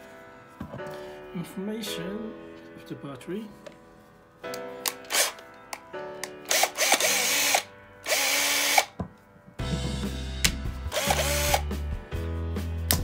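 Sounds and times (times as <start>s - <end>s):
cordless drill spinning: 5.1s - 5.4s, 6.5s - 8.9s, 10.9s - 11.6s.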